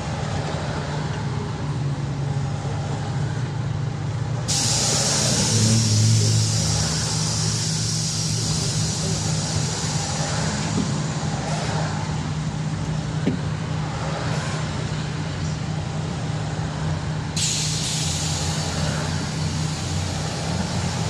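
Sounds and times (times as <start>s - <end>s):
bus engine humming: 0.0s - 21.0s
steady hiss: 4.5s - 10.8s.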